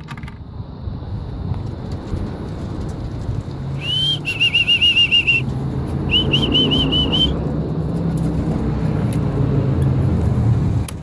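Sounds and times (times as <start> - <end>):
steady low rumble: 0.3 - 11.0
short high whistled notes: 3.8 - 5.4, 6.1 - 7.4.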